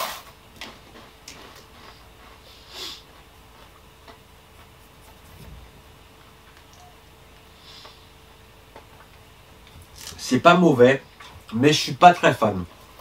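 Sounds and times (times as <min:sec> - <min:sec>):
breath-like hiss: 0:02.4 - 0:03.0, 0:07.6 - 0:08.1.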